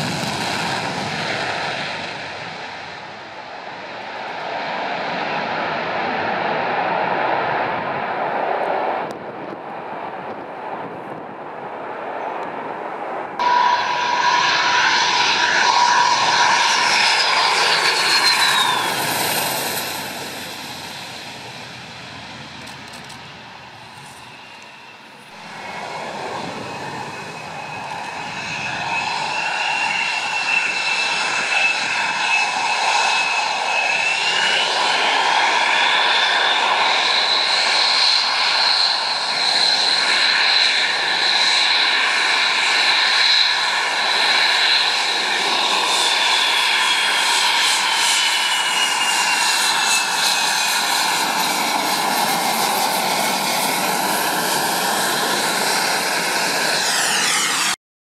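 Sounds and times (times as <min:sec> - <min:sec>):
jet engine whining: 0:00.0 - 0:57.8
high whistle: 0:13.4 - 0:19.0.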